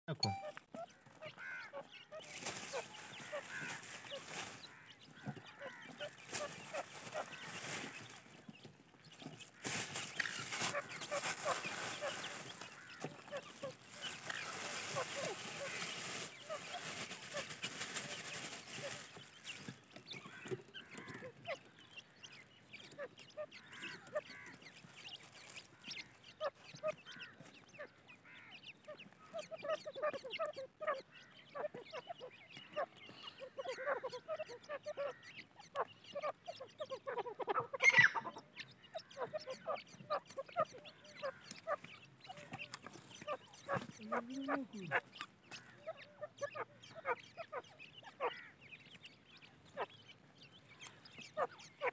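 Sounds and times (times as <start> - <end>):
francolins calling: 0.1 - 51.9
soil poured from plastic bag: 9.5 - 19.1.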